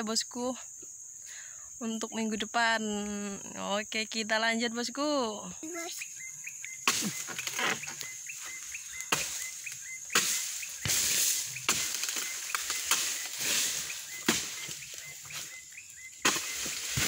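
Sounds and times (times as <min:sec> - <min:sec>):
fronds rustling: 0:05.0 - 0:17.0
blade chopping into palm: 0:06.9 - 0:08.0, 0:09.1 - 0:09.4, 0:10.1 - 0:13.6, 0:14.2 - 0:15.4, 0:16.2 - 0:17.0.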